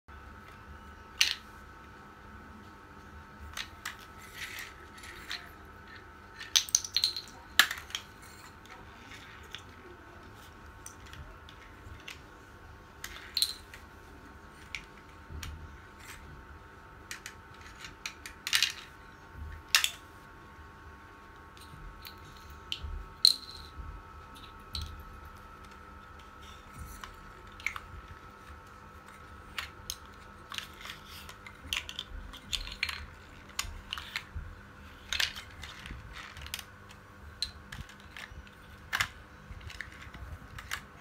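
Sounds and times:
faint hum: 0.1s - 41.0s
plastic toy trucks clattering on tiles: 3.5s - 9.7s, 13.0s - 13.8s, 17.1s - 19.0s, 29.5s - 34.3s.

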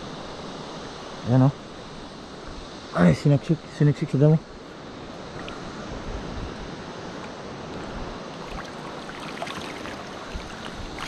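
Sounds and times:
wind buffeting microphone: 5.3s - 11.0s
shallow sea water lapping: 7.2s - 11.0s.

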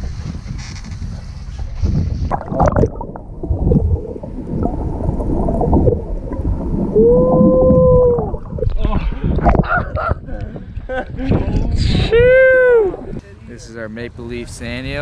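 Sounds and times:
water: 0.0s - 13.2s
wind: 0.0s - 15.0s
muffled underwater bubbling: 2.3s - 9.7s.

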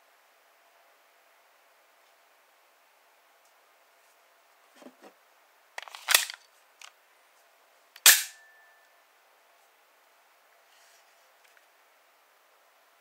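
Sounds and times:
pistol slide snapping forward: 8.0s - 8.4s.

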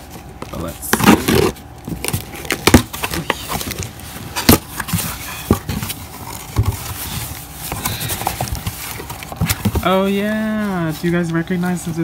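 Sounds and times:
cardboard rustling and scraping: 0.0s - 12.0s
cardboard knocks and snaps: 0.9s - 6.9s.

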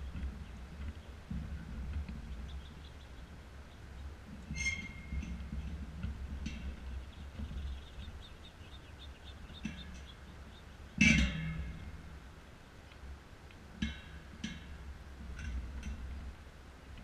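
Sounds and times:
knock on metal feeder ringing: 11.0s - 11.9s.

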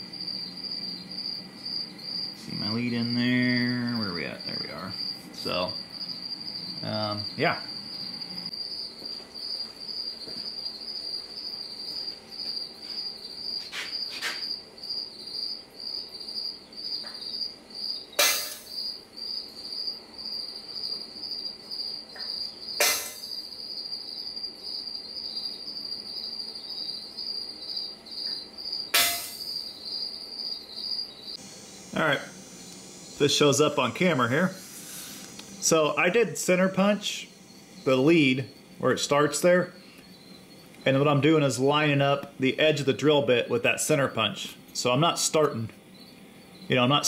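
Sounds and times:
cricket chirping: 0.0s - 47.0s
hammer striking metal punch: 18.2s - 18.8s, 22.8s - 23.3s, 29.0s - 29.5s.

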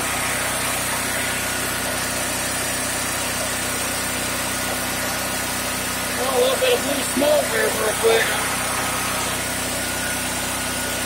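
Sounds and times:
generator engine running: 0.0s - 11.0s.

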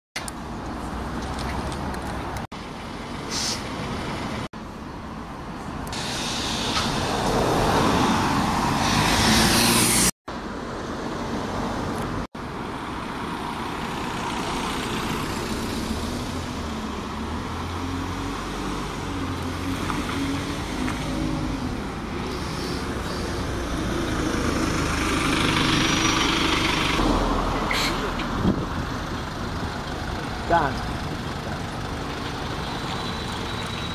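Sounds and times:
bus engines rumbling past: 0.2s - 33.9s
traffic noise: 0.2s - 33.9s.

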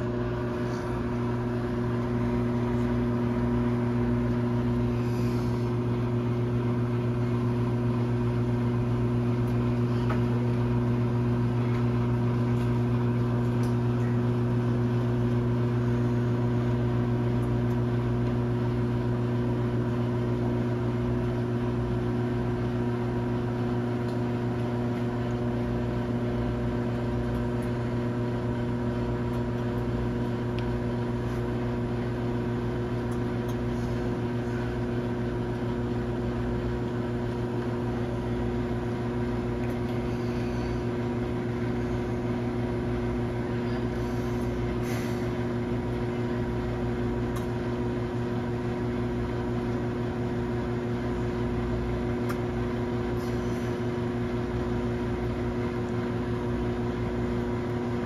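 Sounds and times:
fan whirring: 0.0s - 58.0s
microwave oven hum: 0.0s - 58.0s.

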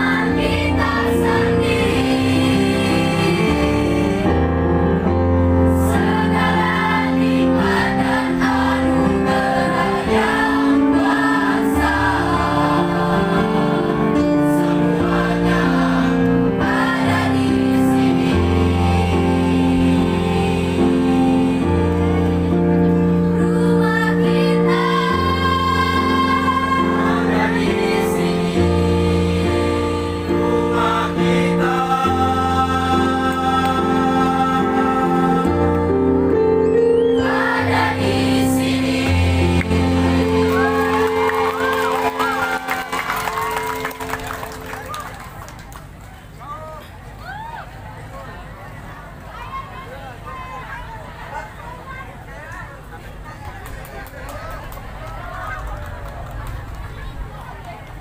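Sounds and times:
choir singing in harmony: 0.0s - 44.5s.

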